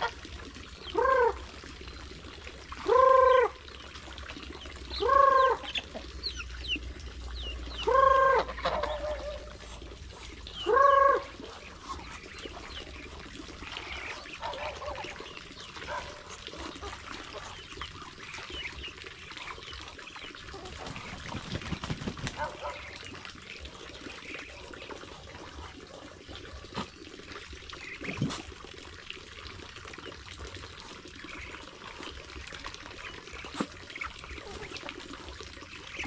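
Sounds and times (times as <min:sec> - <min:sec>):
chickens clucking and chirping: 0:04.5 - 0:26.9
waterfowl honking: 0:07.6 - 0:09.8, 0:10.5 - 0:12.8, 0:13.6 - 0:18.8.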